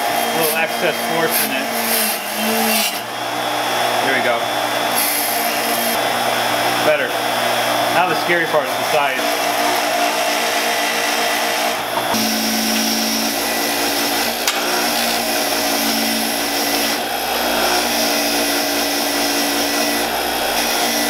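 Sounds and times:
bench grinder motor hum: 0.0s - 21.0s.

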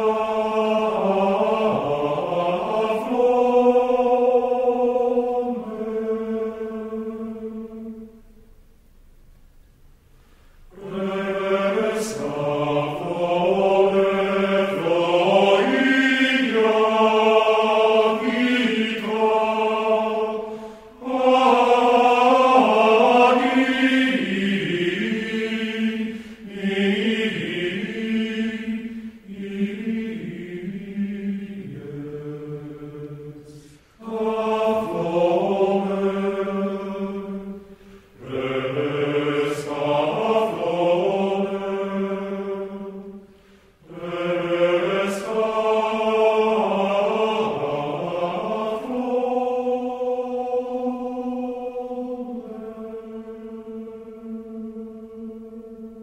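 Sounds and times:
voices chanting plainchant: 0.0s - 8.2s, 10.7s - 56.0s.

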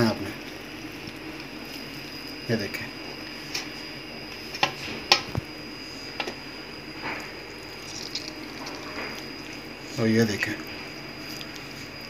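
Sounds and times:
wet hands squeezing cheese curd: 0.1s - 3.4s, 7.3s - 12.0s.

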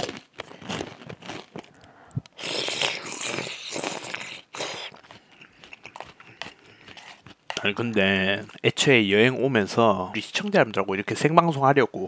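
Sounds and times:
crunching food: 0.0s - 8.7s
slurping: 0.0s - 8.7s.

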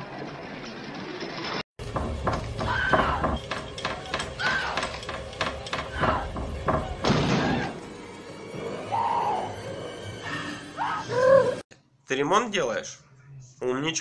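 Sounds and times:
axe splitting wooden door: 1.8s - 7.5s
sharp knocks: 1.8s - 7.6s
woman screaming and whimpering: 10.6s - 11.6s.

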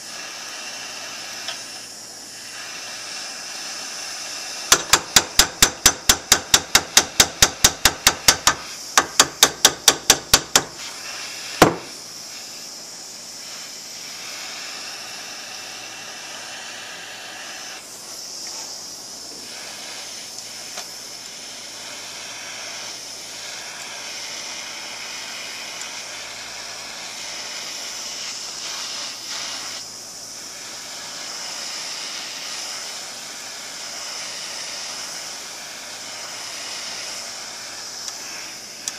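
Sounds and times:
propane torch flame hissing: 0.0s - 38.9s
hammer tapping on metal: 4.7s - 10.8s.

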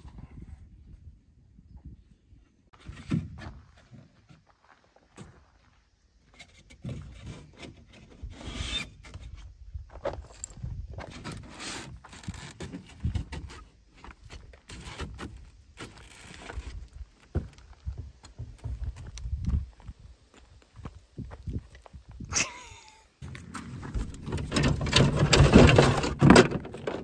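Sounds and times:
foam panels scraping together: 23.4s - 27.0s.

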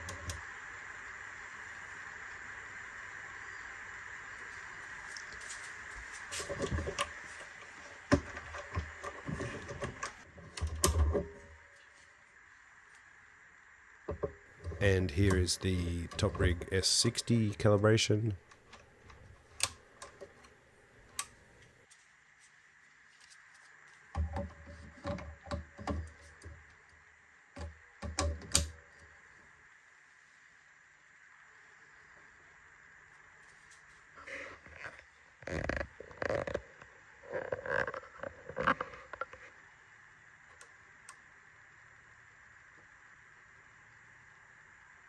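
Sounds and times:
faint fan hum: 0.0s - 35.4s.

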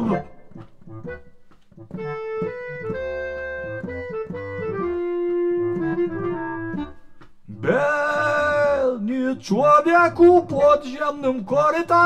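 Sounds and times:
electronic keyboard organ melody: 0.0s - 8.6s.

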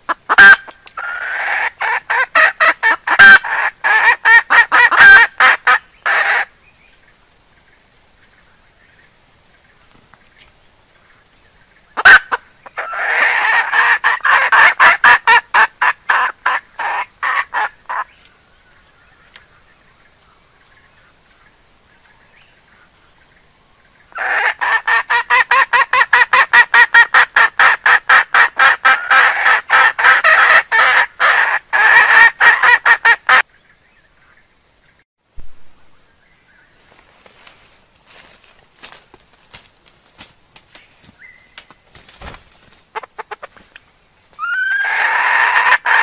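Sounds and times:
hen clucking rapidly: 0.0s - 6.5s, 12.0s - 18.1s, 24.2s - 33.4s, 42.9s - 43.8s, 44.4s - 46.0s.

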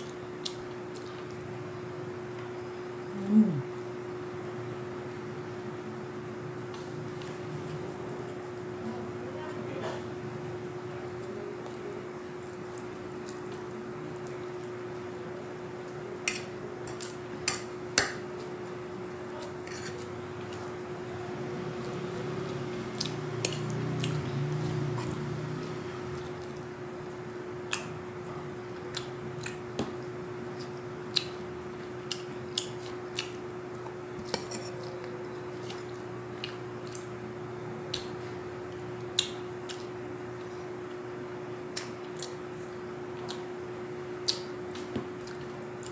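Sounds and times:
steady low hum: 0.0s - 45.9s
chewing: 11.1s - 14.9s, 21.8s - 26.7s, 28.8s - 37.2s, 37.9s - 41.0s, 41.7s - 43.5s, 44.2s - 45.9s.

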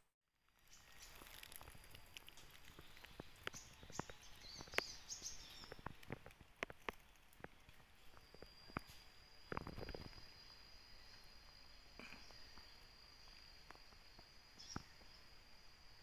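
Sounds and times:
sharp clicks and crackles: 0.5s - 10.2s
insect buzzing: 0.6s - 16.0s.

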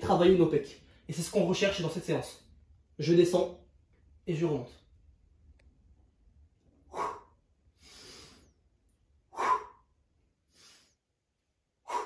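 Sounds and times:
man exhaling forcefully: 6.9s - 8.4s, 9.4s - 9.8s
man inhaling: 6.9s - 8.6s, 10.5s - 11.0s.

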